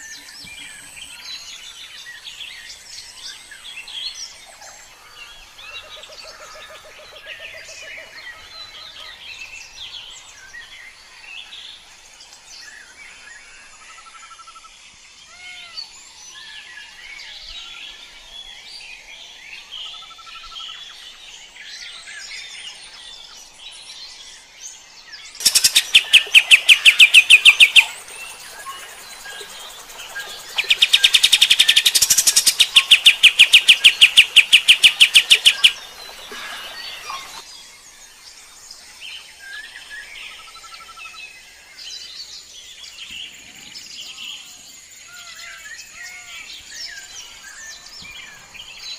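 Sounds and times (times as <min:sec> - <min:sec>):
bulbul singing: 0:25.4 - 0:37.4
rapid repeated bird notes: 0:25.4 - 0:37.4.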